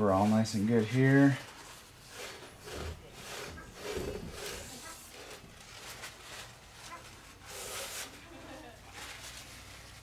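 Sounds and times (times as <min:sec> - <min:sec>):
rag wiping over metal: 0:00.0 - 0:10.0.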